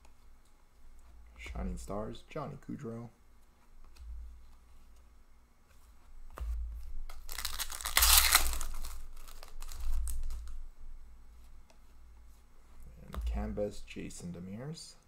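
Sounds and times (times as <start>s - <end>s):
wrapper tearing and crinkling: 7.1s - 10.6s.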